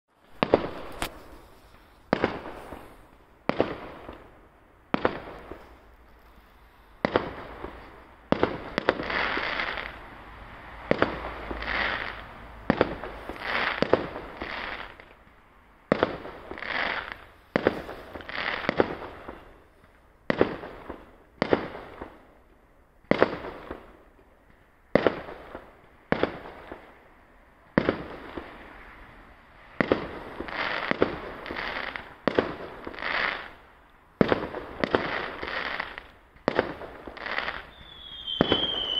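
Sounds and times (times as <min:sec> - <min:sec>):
fireworks bangs echoing: 0:00.2 - 0:10.0, 0:10.6 - 0:22.4, 0:23.1 - 0:24.3, 0:24.9 - 0:27.0, 0:27.7 - 0:28.8, 0:29.7 - 0:38.9.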